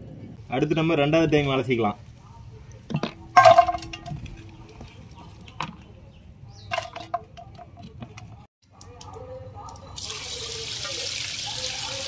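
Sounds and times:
metal cooking vessel clanking: 2.9 - 4.5, 6.6 - 8.3.

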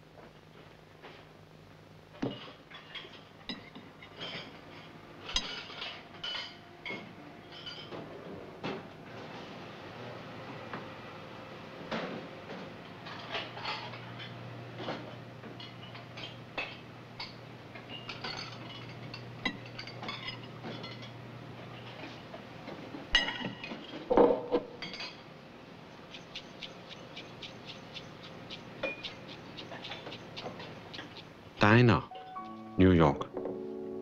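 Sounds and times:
dishes clattering: 2.2 - 8.8, 13.0 - 25.2
fork plate and glass clinking: 5.3 - 8.0, 15.6 - 21.2, 26.1 - 31.2.

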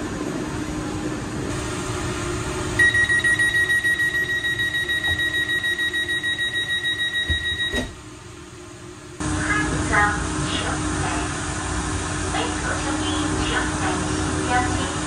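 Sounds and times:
rapid high-pitched door beeping: 2.8 - 7.9.

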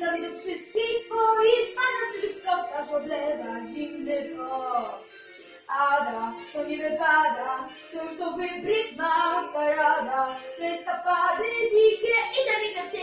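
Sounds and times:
girl singing solo: 5.7 - 13.0.

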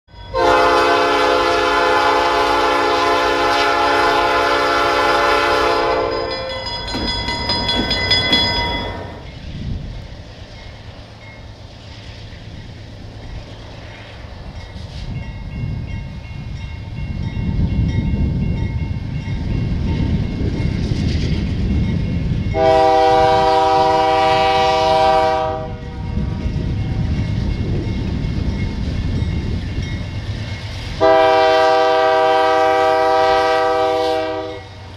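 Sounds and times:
diesel freight train rumble: 0.1 - 34.9
locomotive air horn blasts: 0.3 - 6.8, 22.6 - 26.5, 31.0 - 34.8.

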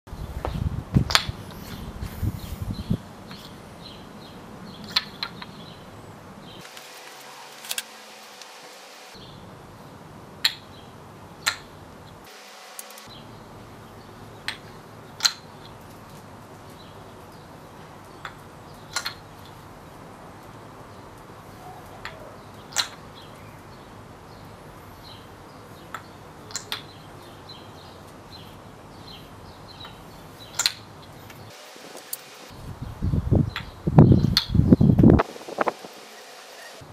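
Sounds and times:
wooden ball clacking on cups: 1.1 - 1.4, 4.8 - 5.6, 10.4 - 10.7, 11.4 - 11.7, 14.4 - 16.0, 18.1 - 19.6, 22.0 - 23.0, 25.9 - 27.0, 29.8 - 30.9.

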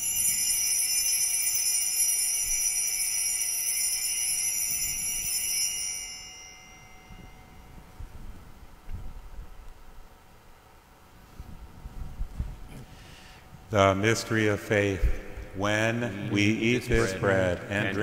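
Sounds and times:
bells jingling: 0.0 - 7.9.

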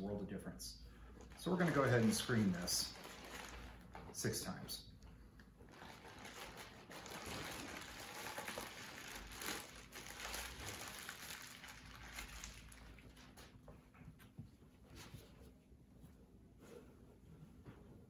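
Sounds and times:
plastic bag crinkling: 1.2 - 4.6, 5.7 - 13.5.

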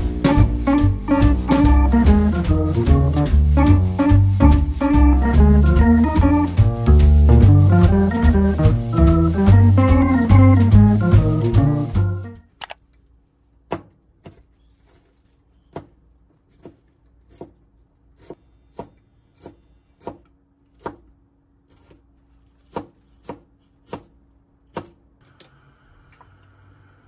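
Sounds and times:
knife chopping on cutting board: 16.5 - 17.6, 18.2 - 21.1, 22.6 - 25.0.

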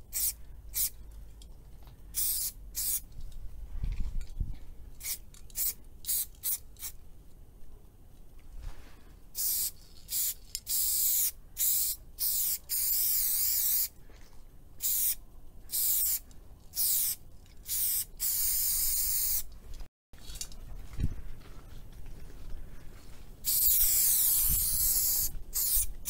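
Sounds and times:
spray paint can hissing: 0.1 - 1.0, 2.2 - 3.1, 5.0 - 7.0, 9.4 - 13.9, 14.8 - 19.5, 23.4 - 26.0.

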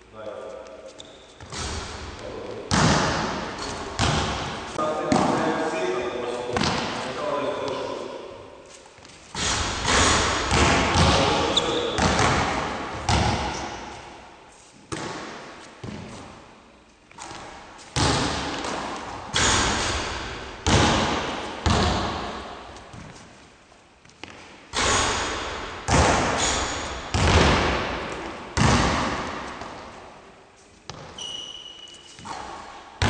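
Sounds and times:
basketballs bouncing on wooden court: 1.4 - 5.5, 6.5 - 7.8, 9.4 - 14.0, 14.9 - 16.3, 17.2 - 23.1, 24.2 - 30.0, 30.9 - 31.6
basketball striking basket: 2.7 - 5.4, 9.4 - 13.8, 18.0 - 22.5, 24.8 - 29.8.

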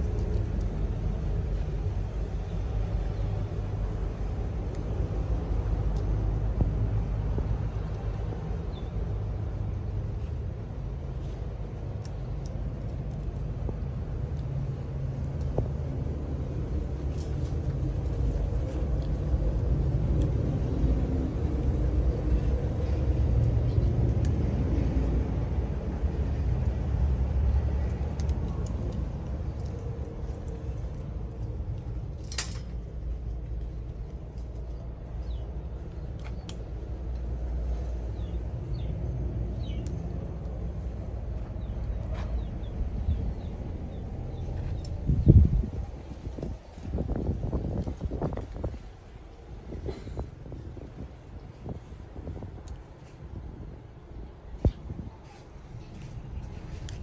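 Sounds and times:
low engine rumble: 0.0 - 57.0.

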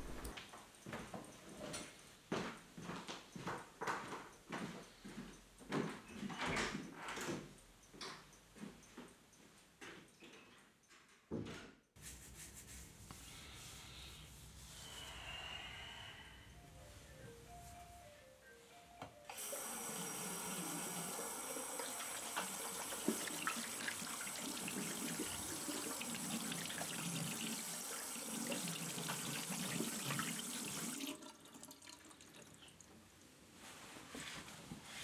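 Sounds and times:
tap water running into sink: 19.3 - 32.8.

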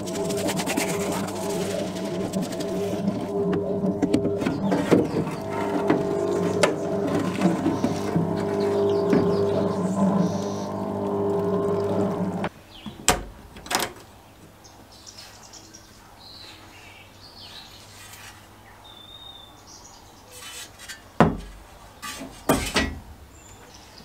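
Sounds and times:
birds chirping faintly: 0.0 - 13.1
metal latch clicking open: 13.0 - 14.0.

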